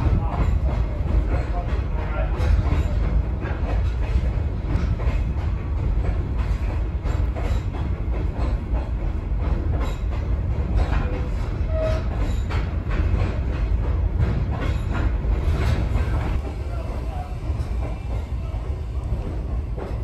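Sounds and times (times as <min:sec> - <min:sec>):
railcar rolling rumble: 0:00.0 - 0:20.0
wheel squeal: 0:11.7 - 0:12.4.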